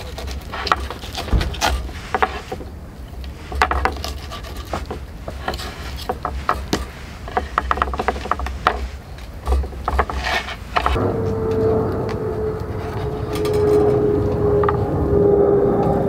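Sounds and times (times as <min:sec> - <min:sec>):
low rumble: 0:10.8 - 0:16.0.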